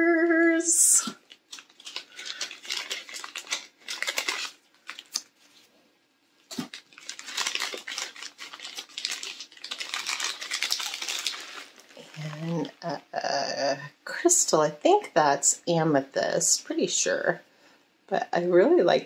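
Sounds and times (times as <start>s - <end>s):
packaging crinkling and rustling: 1.0s - 5.7s, 6.5s - 12.9s.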